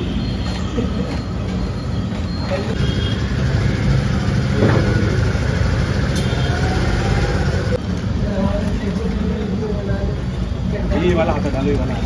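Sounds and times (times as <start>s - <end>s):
engine running: 2.7s - 8.0s.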